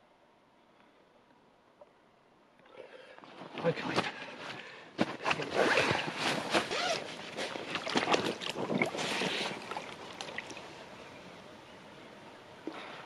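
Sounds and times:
water splashing and sloshing: 0:02.8 - 0:10.9
handling knocks and rustles: 0:03.2 - 0:10.5.

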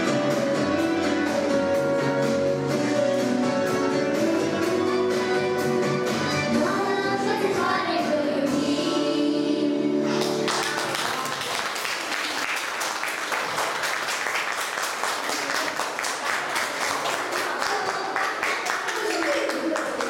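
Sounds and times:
backing music: 0:00.0 - 0:11.2
children singing: 0:06.7 - 0:10.5
applause: 0:10.2 - 0:20.0.

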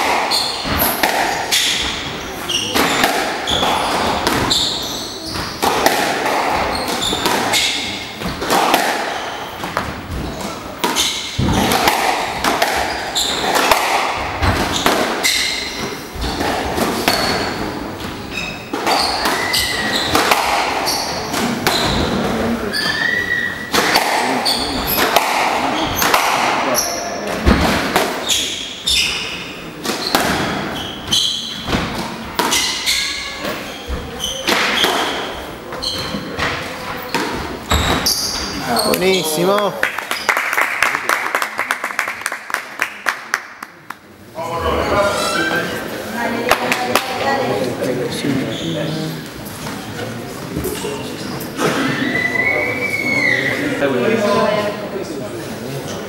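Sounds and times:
squash ball hitting rackets: 0:00.0 - 0:22.9, 0:23.6 - 0:39.0
sneakers squeaking on wooden floor: 0:00.0 - 0:40.2, 0:44.7 - 0:53.8
murmur of spectators: 0:00.0 - 0:56.0.

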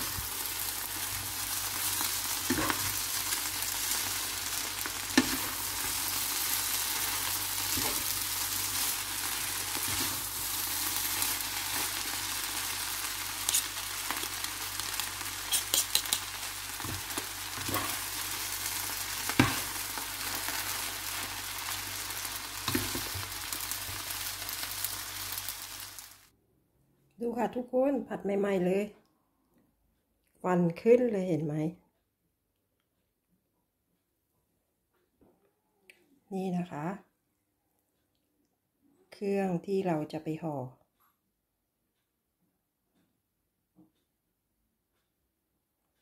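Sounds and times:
vegetables sizzling in a pan: 0:00.0 - 0:26.3.

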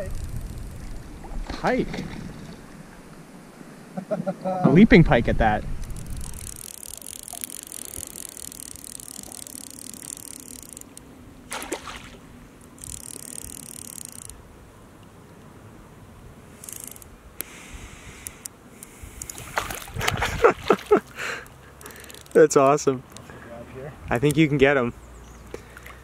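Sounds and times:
fish splashing: 0:05.9 - 0:14.3, 0:19.2 - 0:22.3
water splashing and trickling: 0:06.0 - 0:14.1, 0:19.3 - 0:22.6, 0:25.5 - 0:26.0.

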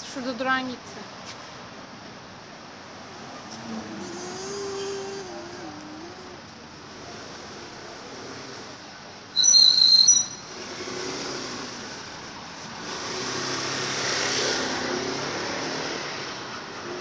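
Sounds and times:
sharp high-pitched squeal: 0:09.4 - 0:10.6
motor vehicle passing: 0:10.2 - 0:17.0.

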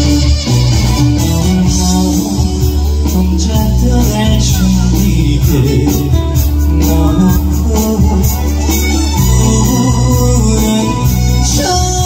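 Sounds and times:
backing track with guitar and beat: 0:00.0 - 0:12.0
man singing into a microphone: 0:01.4 - 0:12.0.

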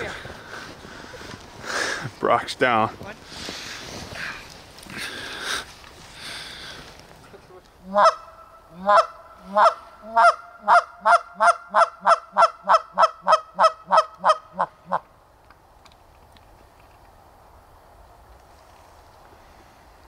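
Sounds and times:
goose call honks: 0:07.8 - 0:15.0.

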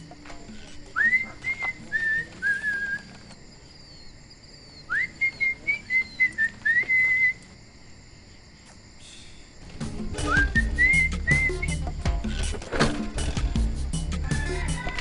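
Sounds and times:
person whistling a tune: 0:01.0 - 0:03.1, 0:04.9 - 0:07.4, 0:10.2 - 0:11.8.

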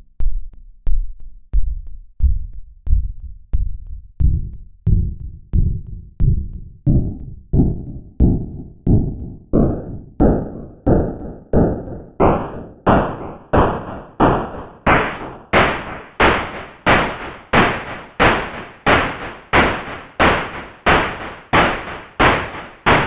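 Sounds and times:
synthesizer noise bursts: 0:09.6 - 0:23.0.

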